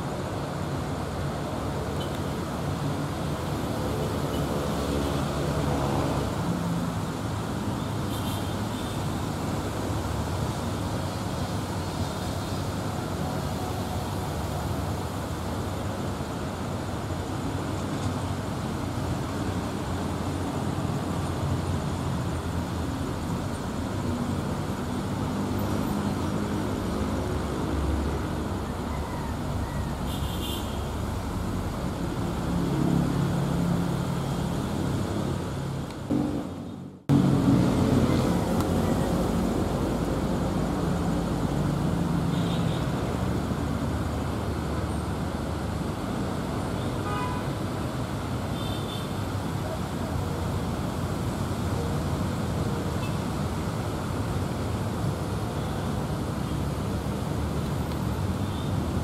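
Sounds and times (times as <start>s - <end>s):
road traffic: 0.0s - 59.0s
motorcycles passing: 23.7s - 30.1s, 30.7s - 47.4s.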